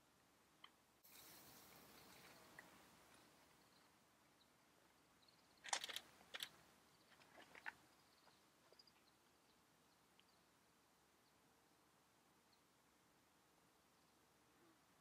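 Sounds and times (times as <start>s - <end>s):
faint clicks and rustles: 5.6s - 9.2s.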